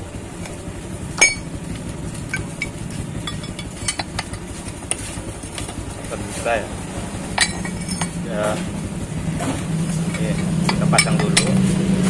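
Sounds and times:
low hum: 0.0 - 12.0
metal tools clinking: 1.2 - 1.6, 2.2 - 5.0, 7.3 - 8.7, 9.4 - 11.6.

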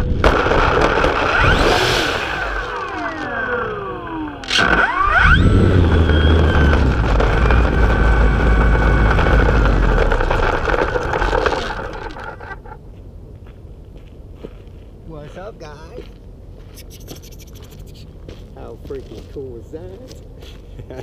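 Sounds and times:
rough rumble on gravel: 0.0 - 16.7, 18.1 - 21.0
model plane motor whine: 1.2 - 12.2.

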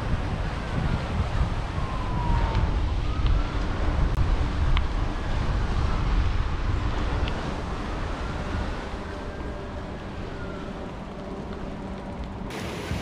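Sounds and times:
wind buffeting microphone: 0.0 - 13.0
distant siren wailing: 0.4 - 12.5.

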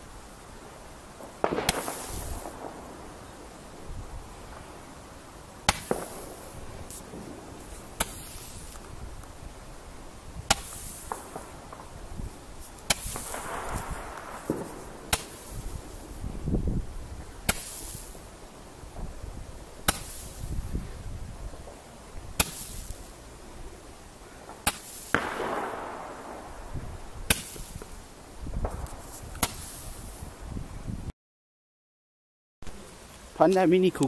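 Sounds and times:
firework star hissing: 0.0 - 30.5
roman candle pops: 1.3 - 2.8, 5.6 - 9.3.

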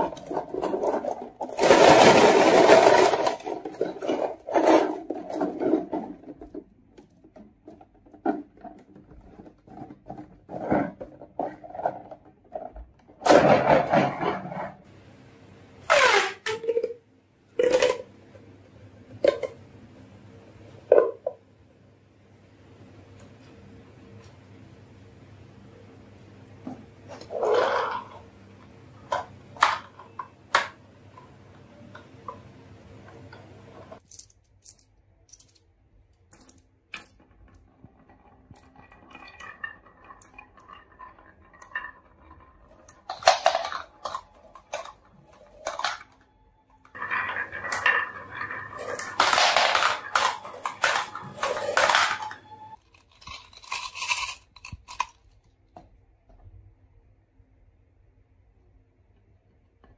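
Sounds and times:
marbles clattering down wooden track: 0.0 - 6.6, 37.0 - 46.2, 46.9 - 55.0.

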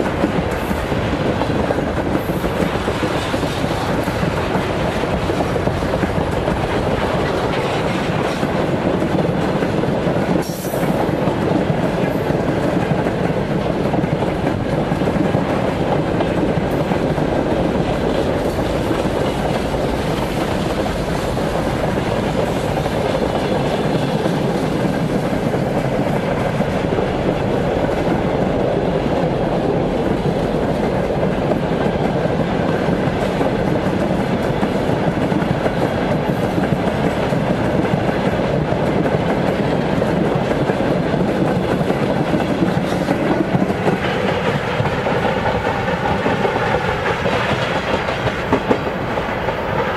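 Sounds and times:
freight train rumbling past: 0.0 - 49.9
wheels clattering on rails: 0.0 - 49.9.

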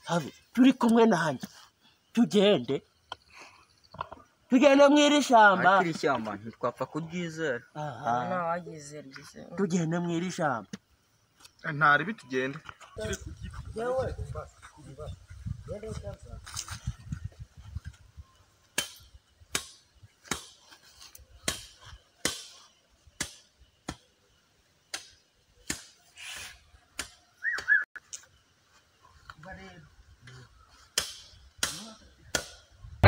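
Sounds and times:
machete chopping wood: 18.8 - 20.6, 21.4 - 22.6, 23.2 - 24.1, 24.9 - 26.0, 26.9 - 27.7, 30.9 - 32.6.

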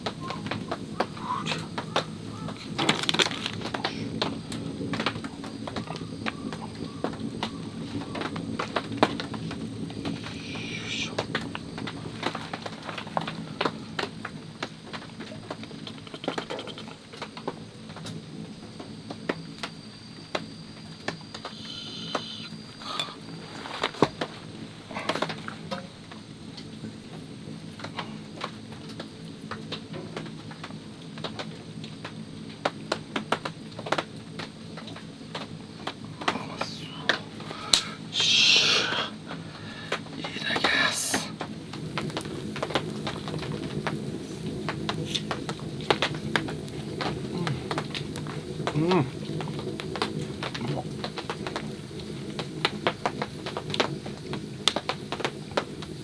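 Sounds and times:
low background noise: 0.0 - 56.0
raindrops dripping and pattering: 0.0 - 56.0
steady background hiss: 0.0 - 56.0
pepper grinder crackling: 2.6 - 3.9.

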